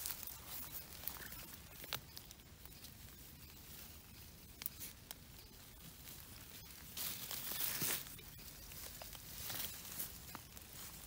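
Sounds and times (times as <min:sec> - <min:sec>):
rustling of wet grass: 0:00.0 - 0:11.0.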